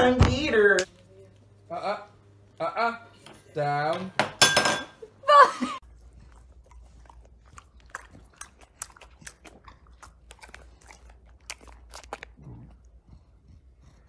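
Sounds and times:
dog chewing and smacking: 5.8 - 14.0.

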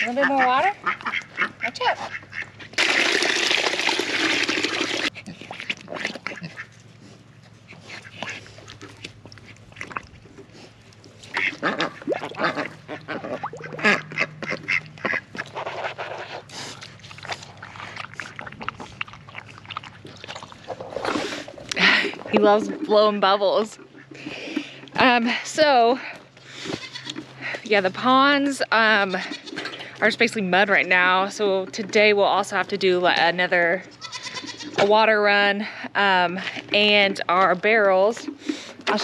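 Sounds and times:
pig drinking and blowing bubbles: 0.0 - 25.4, 38.1 - 39.0
water pouring into a pan: 2.8 - 5.1.

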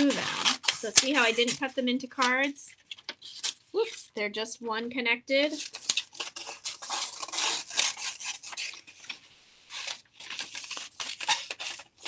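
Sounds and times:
scratchy rubbing on paper: 0.0 - 1.8, 5.5 - 9.1.

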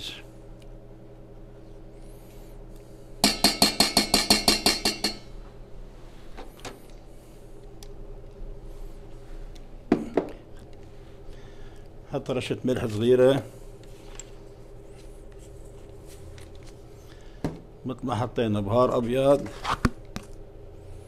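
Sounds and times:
spoon tapping against a bowl: 3.2 - 5.3.

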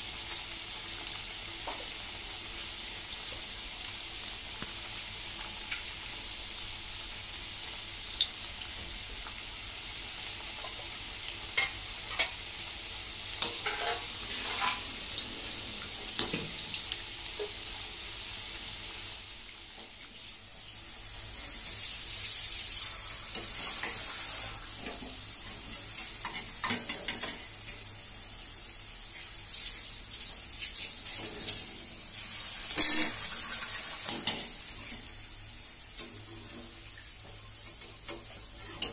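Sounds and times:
fritters sizzling in hot oil: 0.0 - 38.9.

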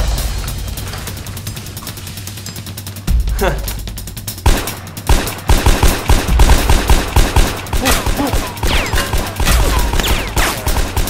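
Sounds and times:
foam dart blaster rapid fire: 4.4 - 11.0.

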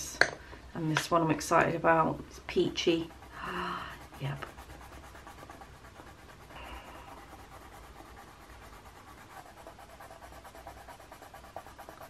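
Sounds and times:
colour stick scratching on paper: 2.5 - 12.0.

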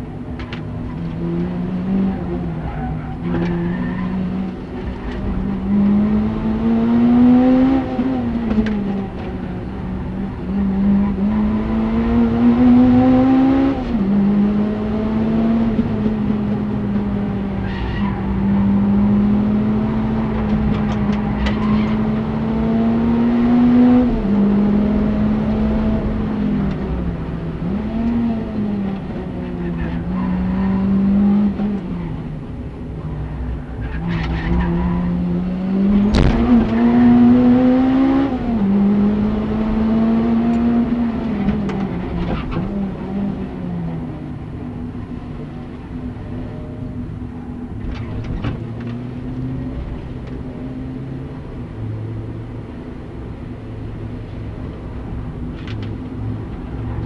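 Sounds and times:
car engine revving: 0.8 - 53.2.

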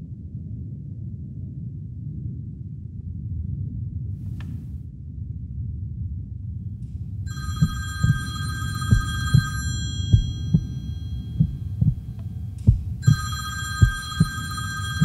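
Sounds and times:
high steady ringing tone: 7.3 - 15.0
heartbeat double thumps: 7.5 - 15.0
low rumble: 10.0 - 13.2.

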